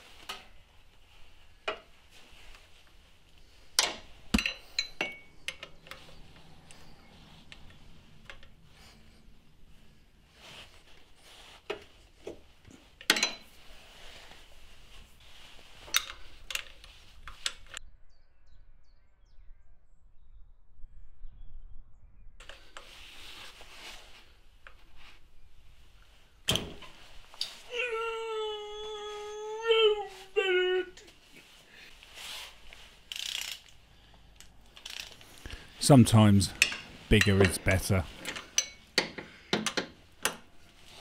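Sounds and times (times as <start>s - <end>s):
socket wrench clicking and clanking: 33.1s - 33.8s, 34.8s - 35.2s, 38.2s - 40.4s.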